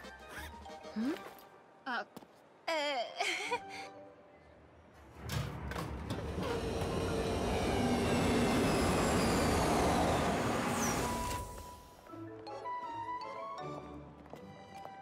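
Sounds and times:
train rushing past: 0:05.1 - 0:12.0
high whines dropping in pitch: 0:06.2 - 0:11.8.

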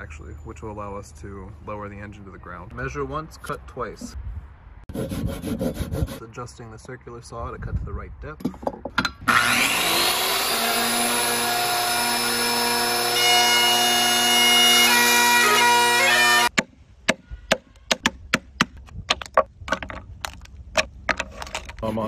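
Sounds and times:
circular saw cutting wood: 0:09.2 - 0:16.5
mallet knocking on chisel: 0:16.5 - 0:20.0.

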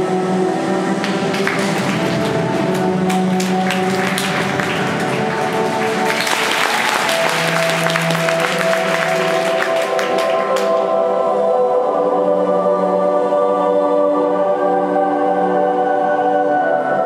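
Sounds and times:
music with sustained notes: 0:00.0 - 0:17.0
audience applause: 0:01.0 - 0:10.8.

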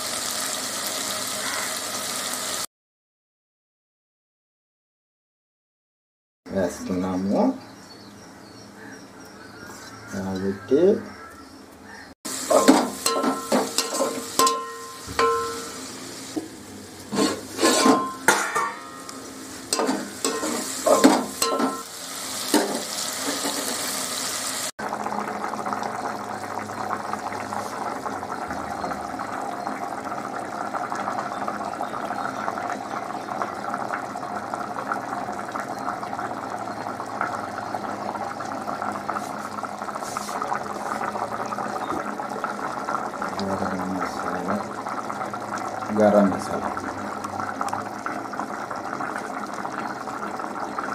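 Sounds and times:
curry bubbling and sizzling: 0:12.3 - 0:50.9
metal ladle knocking on pot: 0:12.5 - 0:15.8, 0:17.6 - 0:19.0, 0:19.8 - 0:21.9.

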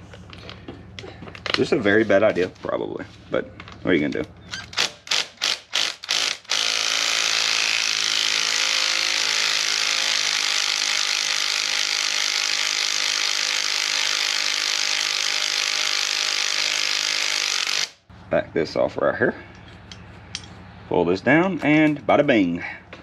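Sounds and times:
cordless electric ratchet running: 0:04.5 - 0:18.0.

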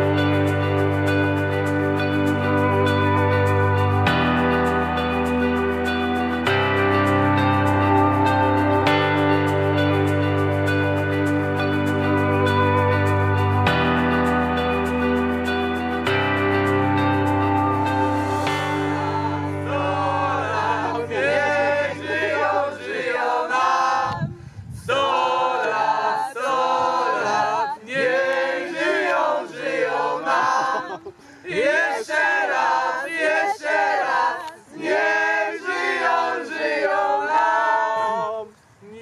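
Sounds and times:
group singing unaccompanied: 0:18.2 - 0:38.4.

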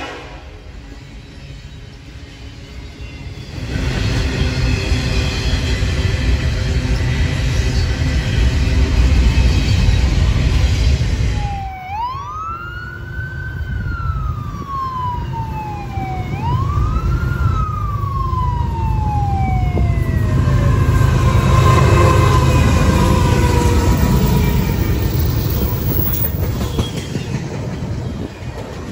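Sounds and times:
freight train rumbling: 0:00.0 - 0:28.9
siren wailing: 0:11.2 - 0:26.1.

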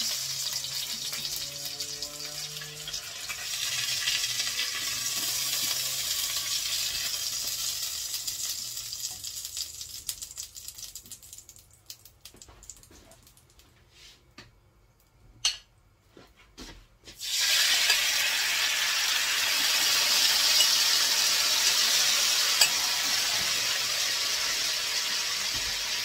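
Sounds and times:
chicken sizzling in hot oil: 0:00.0 - 0:11.7, 0:17.2 - 0:26.0.

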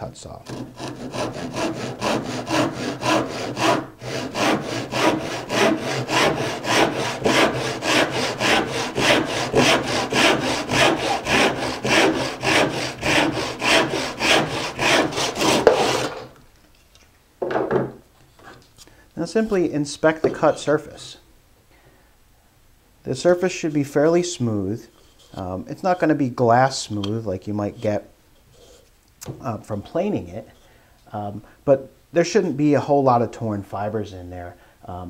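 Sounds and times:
hand saw cutting wood: 0:00.4 - 0:16.3.

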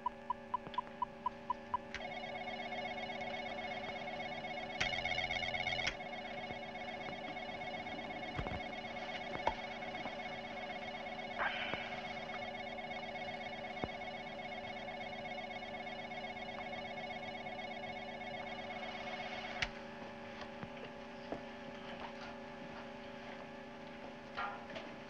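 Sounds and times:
rapid pulsing beep: 0:00.0 - 0:19.7
electronic equipment humming: 0:00.0 - 0:25.0.

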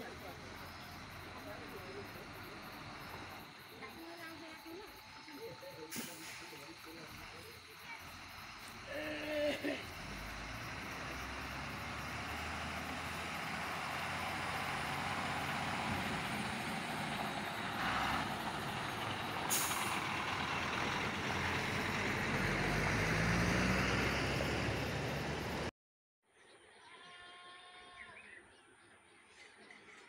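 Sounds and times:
short hiss: 0:05.9 - 0:06.5, 0:19.5 - 0:20.0
truck engine running: 0:09.8 - 0:25.7.

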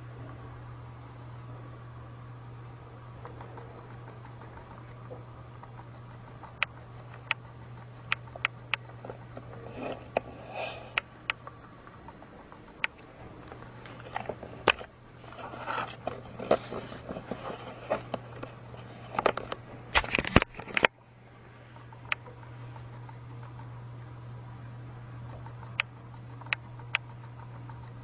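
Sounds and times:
steady low hum: 0:00.0 - 0:28.0
sharp clicks: 0:04.3 - 0:07.4, 0:10.9 - 0:14.0, 0:25.6 - 0:27.1
light scraping: 0:09.0 - 0:11.0, 0:13.5 - 0:19.6.

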